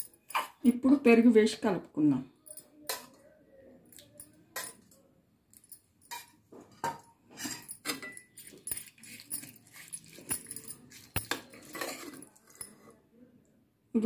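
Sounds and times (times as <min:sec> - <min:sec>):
metal spoon clinking against pot: 0:05.6 - 0:12.9.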